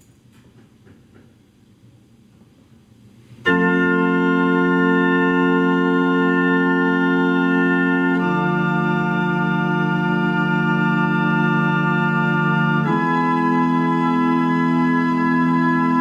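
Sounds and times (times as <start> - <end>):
pipe organ chord: 3.4 - 16.0.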